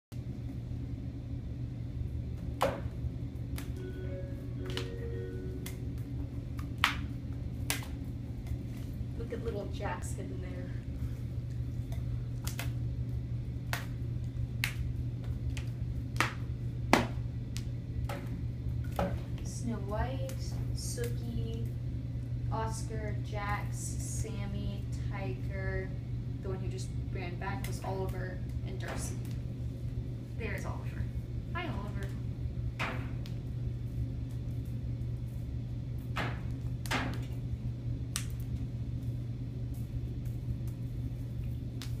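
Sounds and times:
low room hum: 0:00.1 - 0:42.0.

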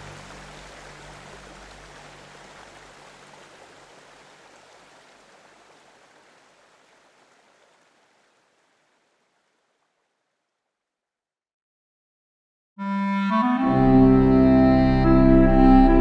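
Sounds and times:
rushing river water: 0:00.0 - 0:10.2.

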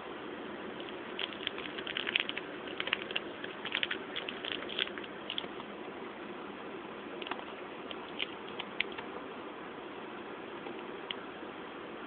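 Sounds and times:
packaging crinkling: 0:00.8 - 0:05.6.

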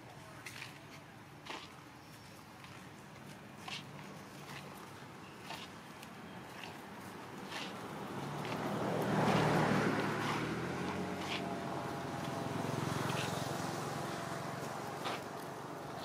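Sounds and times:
vehicle engine passing by: 0:07.4 - 0:16.0.

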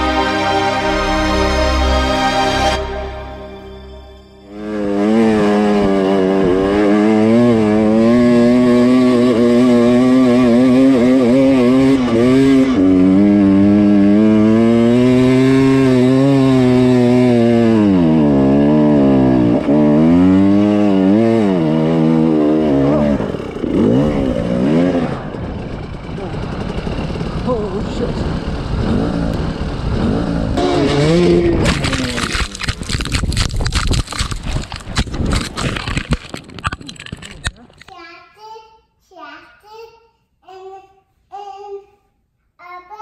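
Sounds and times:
dirt bike engine revving high: 0:04.5 - 0:36.0.

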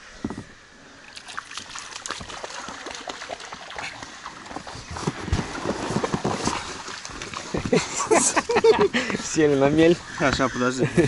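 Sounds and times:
water splashing: 0:01.0 - 0:09.0
mud squelching: 0:01.0 - 0:09.2.

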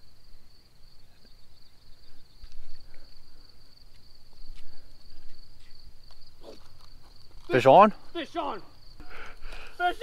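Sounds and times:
crickets trilling: 0:00.0 - 0:10.0.

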